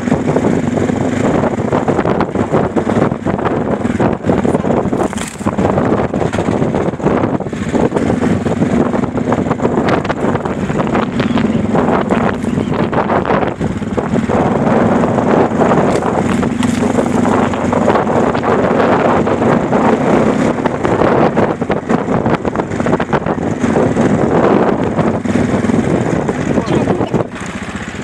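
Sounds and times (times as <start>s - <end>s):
car engine and road drone: 0.0s - 28.0s
wind noise on microphone: 0.0s - 28.0s.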